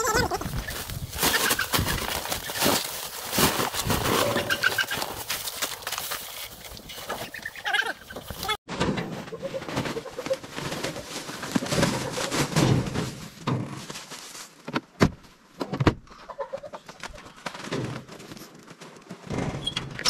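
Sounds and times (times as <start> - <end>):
sack and bread rustling: 0.5 - 6.2, 9.6 - 14.6.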